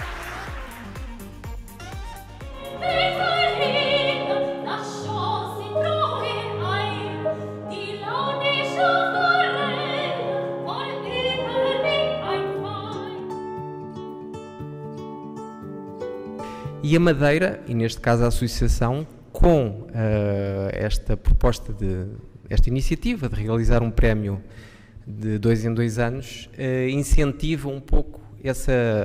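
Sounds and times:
digital piano: 0.0 - 18.0
woman singing operatically: 2.5 - 13.4.

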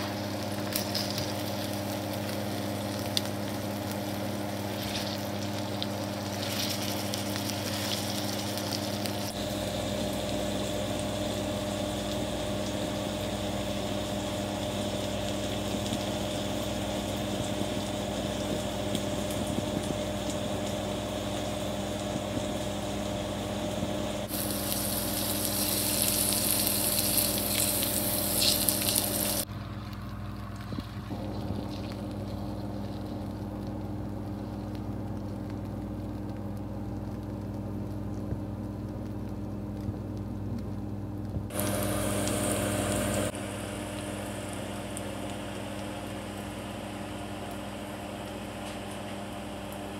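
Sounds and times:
steady low hum: 0.0 - 49.9
steaks sizzling in a pan: 4.2 - 11.1, 24.3 - 29.4.

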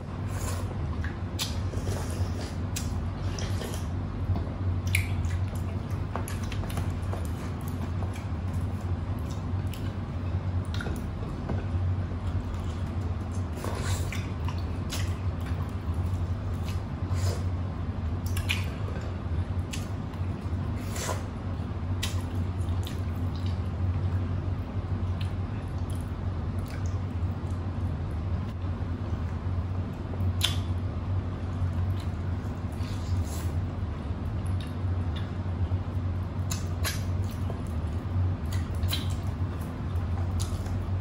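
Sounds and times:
steady low hum: 0.0 - 41.0
wet chewing and slurping: 0.3 - 4.0, 4.8 - 17.5.

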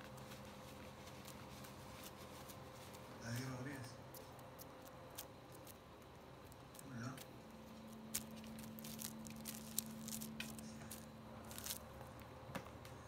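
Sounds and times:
plastic bag crinkling and rustling: 0.0 - 3.5, 6.4 - 12.2
faint low hum: 0.0 - 13.0.

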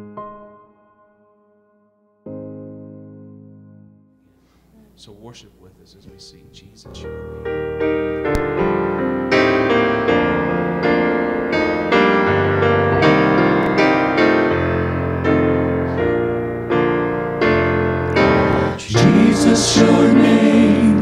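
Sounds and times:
piano chords: 0.0 - 4.4, 6.2 - 21.0.

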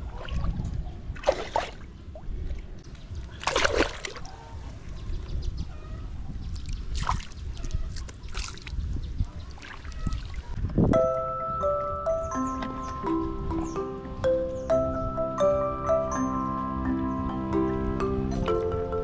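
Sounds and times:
water splashing: 3.4 - 4.3.

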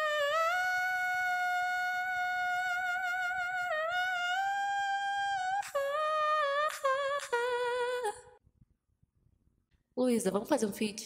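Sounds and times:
woman singing a cappella: 0.0 - 8.4.

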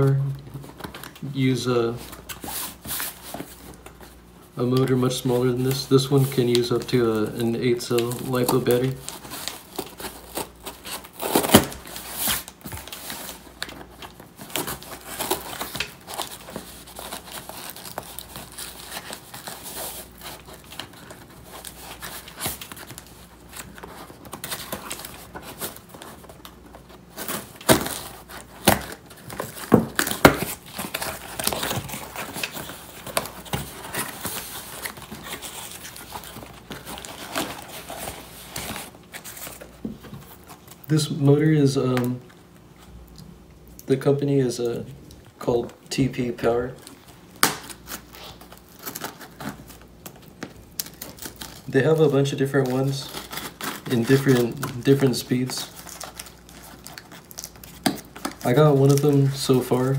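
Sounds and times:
foam packing crinkling: 0.0 - 42.7, 45.4 - 59.9
scissors cutting packing tape: 8.0 - 13.0, 27.2 - 38.8, 50.8 - 59.2.

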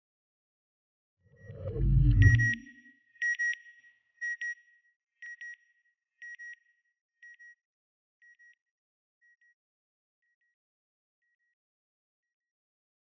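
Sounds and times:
double electronic beep: 1.4 - 2.8.

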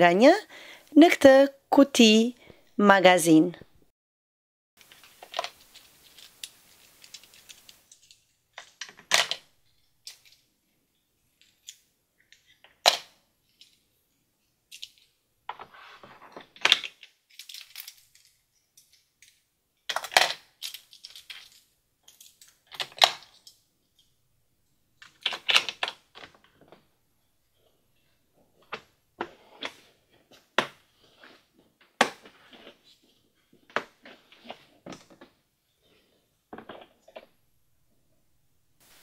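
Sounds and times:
plastic toy trains clattering: 4.8 - 9.4.

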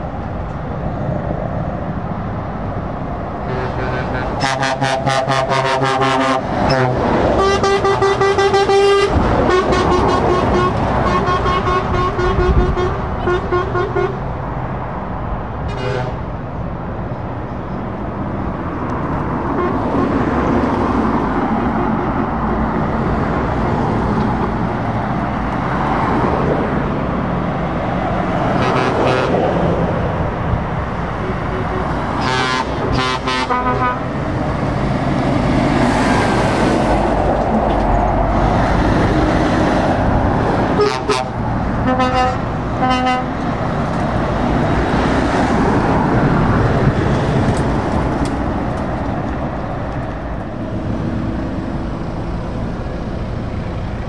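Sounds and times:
heavy trucks driving past: 0.0 - 54.0
lorry air horn blasts: 3.5 - 14.2, 31.6 - 34.0.

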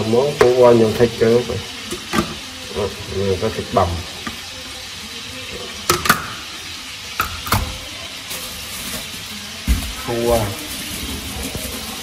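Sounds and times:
plastic bag rustling: 7.8 - 12.0.

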